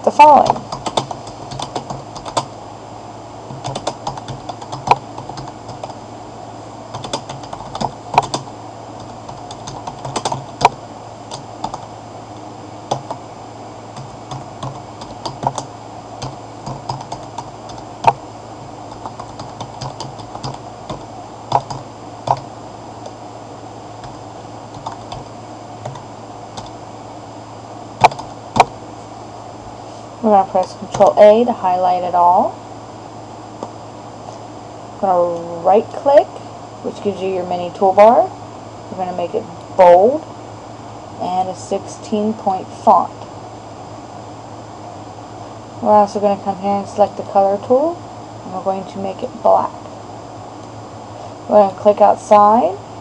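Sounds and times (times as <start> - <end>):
steady low hum: 0.0 - 53.0
typing on computer keyboard: 0.5 - 2.5, 3.6 - 5.9, 7.0 - 8.5, 9.3 - 11.8, 14.0 - 17.8.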